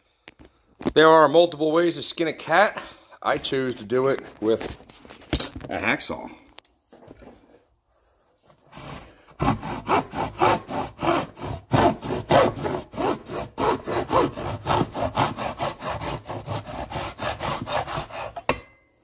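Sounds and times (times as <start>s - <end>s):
hacksaw cutting plastic: 8.7s - 18.6s.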